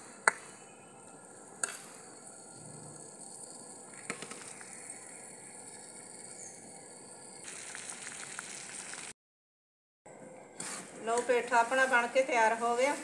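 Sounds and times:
sugar syrup bubbling and sizzling: 1.4s - 9.2s.

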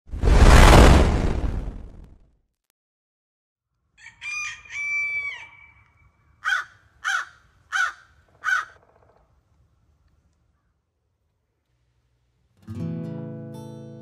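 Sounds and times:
rooster crowing: 4.0s - 8.7s
crow cawing: 6.4s - 8.8s.

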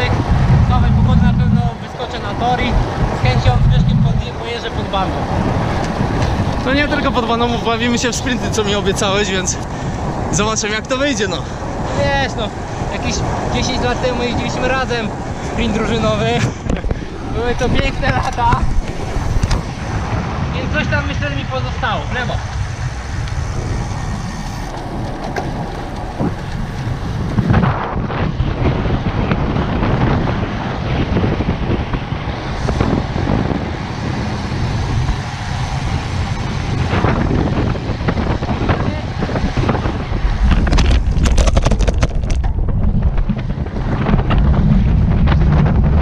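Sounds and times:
tyre and road noise: 0.0s - 46.0s
wind noise on microphone: 0.0s - 46.0s
bike rattles and knocks: 23.7s - 27.7s, 38.0s - 46.0s.

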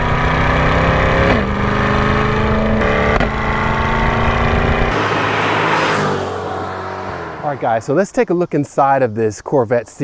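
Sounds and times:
car engine running: 0.0s - 7.8s
car driving toward microphone: 0.0s - 8.0s.

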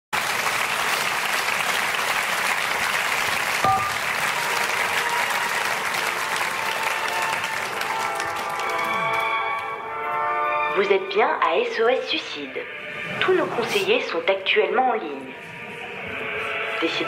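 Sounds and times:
audience applauding: 0.1s - 9.7s.

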